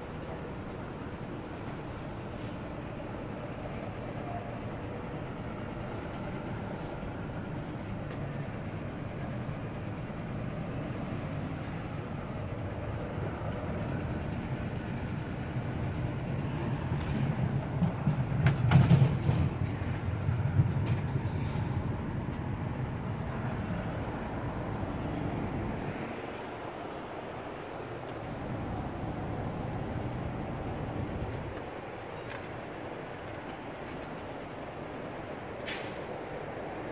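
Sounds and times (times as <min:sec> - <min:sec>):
street traffic rumble: 0:00.0 - 0:36.9
heavy vehicle passing: 0:05.0 - 0:31.9.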